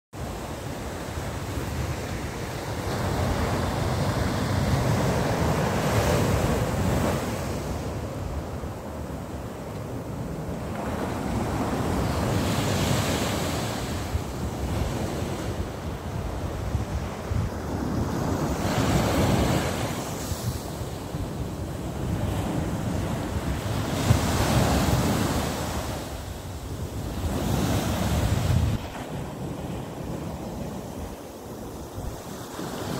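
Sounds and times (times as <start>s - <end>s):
sea waves breaking on beach: 0.2s - 32.9s
wind rumble on microphone: 0.2s - 32.9s.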